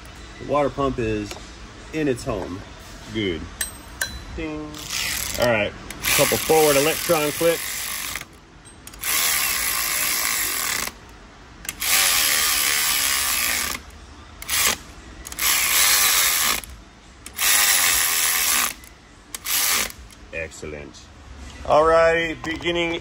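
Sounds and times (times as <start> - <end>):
cordless electric ratchet running: 4.8 - 11.0, 11.7 - 16.7, 17.3 - 20.1.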